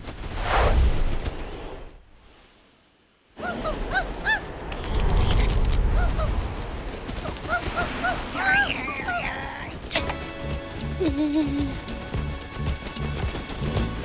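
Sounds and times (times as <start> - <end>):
loud rush with low rumble: 4.4 - 9.9.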